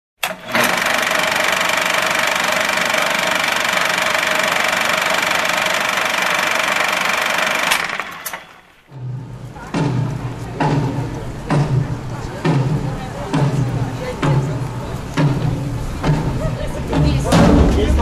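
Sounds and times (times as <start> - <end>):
film projector rattling: 0.2 - 8.8.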